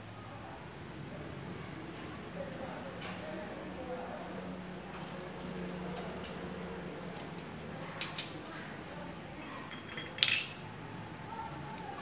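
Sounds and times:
small metal parts clinking: 0:09.4 - 0:10.7.

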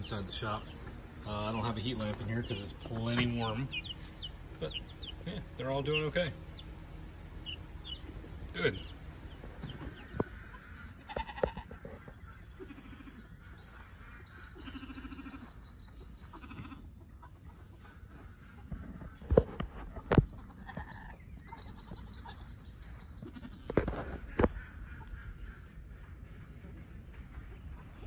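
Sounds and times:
animal bleating: 0:10.9 - 0:11.8, 0:12.5 - 0:13.3, 0:14.5 - 0:15.6, 0:16.2 - 0:17.0, 0:20.3 - 0:22.6, 0:23.2 - 0:23.8.

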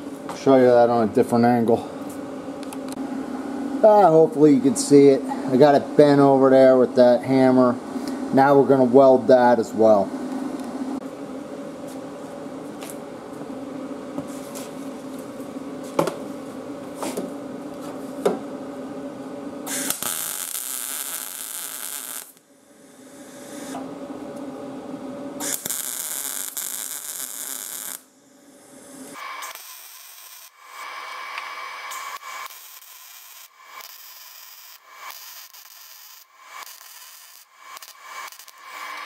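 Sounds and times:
steady hum: 0:00.0 - 0:29.6, 0:30.4 - 0:39.0
welding arc: 0:19.7 - 0:22.4, 0:25.4 - 0:28.1, 0:29.0 - 0:39.0.

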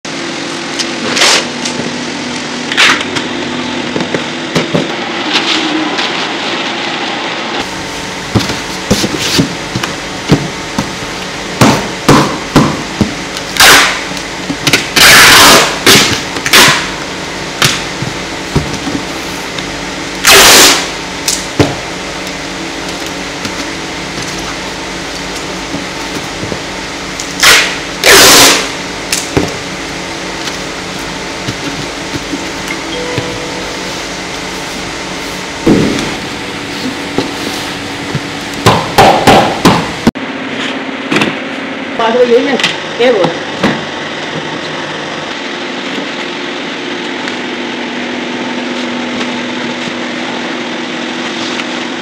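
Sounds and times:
steady background hum: 0:00.0 - 0:52.0.

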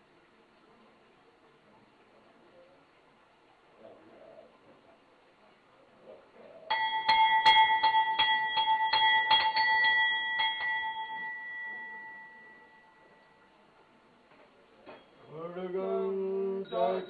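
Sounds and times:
hand bell ringing: 0:06.7 - 0:13.4.

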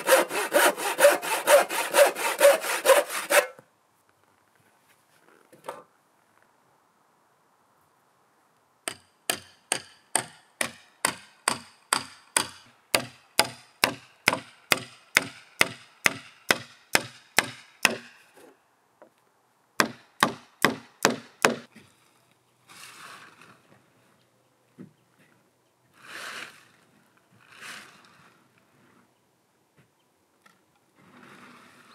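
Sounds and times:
hammer striking wood: 0:08.9 - 0:18.2, 0:19.8 - 0:21.7.

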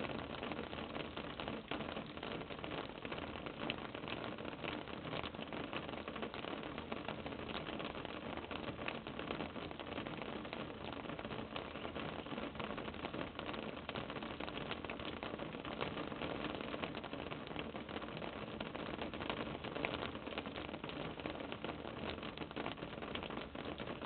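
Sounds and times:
faint crackling and rustling: 0:00.0 - 0:24.0.

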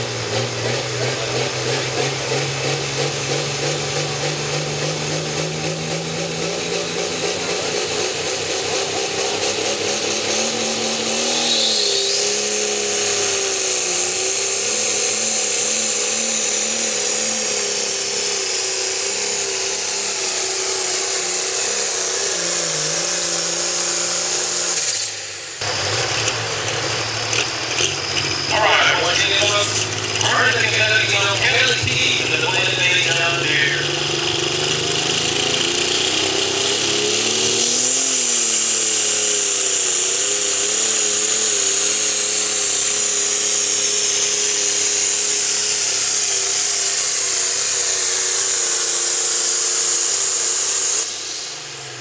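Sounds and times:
diesel engine revving: 0:00.0 - 0:52.0
turbocharger whine: 0:00.0 - 0:52.0.

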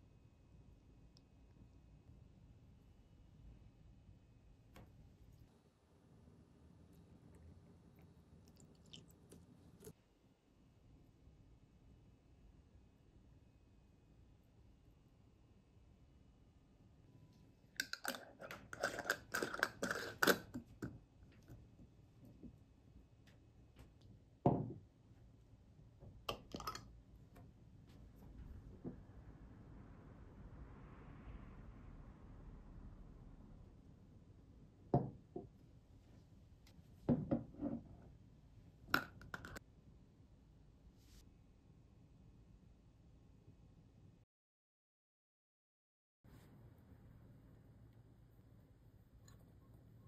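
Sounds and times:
glass jars knocking on wooden table: 0:24.5 - 0:24.8, 0:35.0 - 0:35.5, 0:37.1 - 0:37.8.

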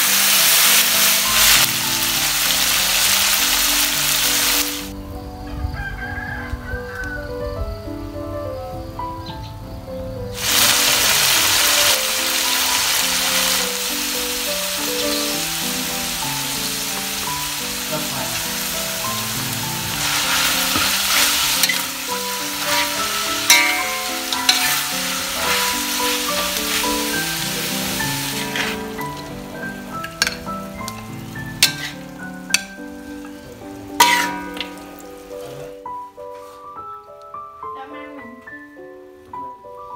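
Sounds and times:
chicken sizzling in a wok: 0:00.0 - 0:05.0, 0:05.7 - 0:07.1, 0:10.4 - 0:35.8
background music: 0:00.0 - 0:39.9
spatula clinking against pan: 0:22.6 - 0:26.5, 0:30.0 - 0:30.5, 0:31.6 - 0:32.0, 0:34.0 - 0:34.8.

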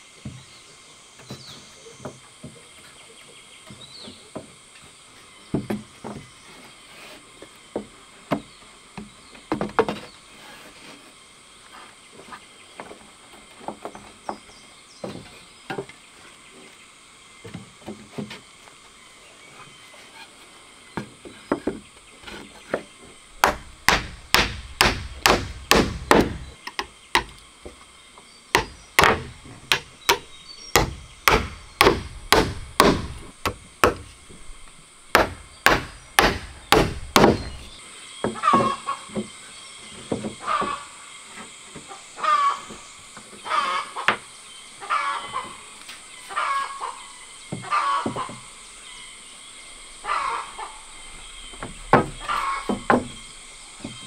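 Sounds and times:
hammer striking nails into wood: 0:23.4 - 0:26.4, 0:28.6 - 0:34.0, 0:35.1 - 0:37.6.

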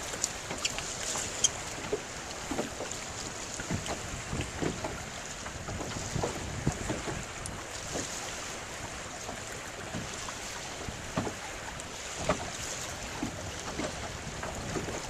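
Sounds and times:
waves knocking against boat hull: 0:00.0 - 0:15.0
wind on microphone: 0:03.7 - 0:07.6, 0:12.2 - 0:15.0.

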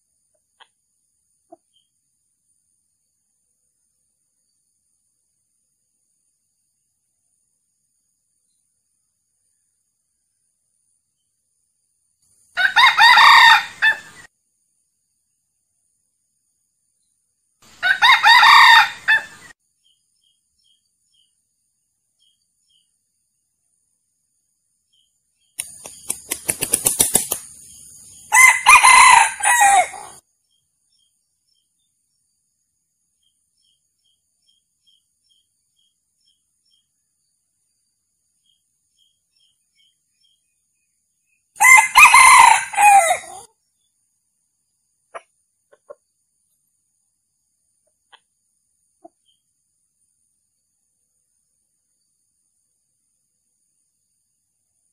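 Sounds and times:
rooster crowing: 0:12.6 - 0:14.1, 0:17.8 - 0:19.4, 0:28.3 - 0:30.2, 0:41.6 - 0:43.5.

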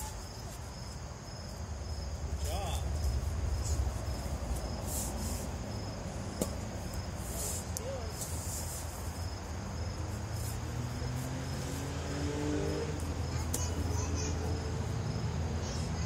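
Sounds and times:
insects chirping: 0:00.0 - 0:16.0.

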